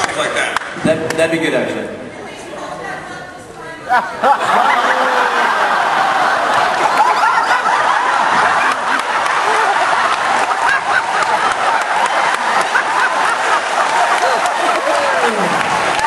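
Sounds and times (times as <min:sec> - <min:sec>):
overlapping chatter: 0:00.0 - 0:16.0
audience laughing: 0:03.8 - 0:16.0.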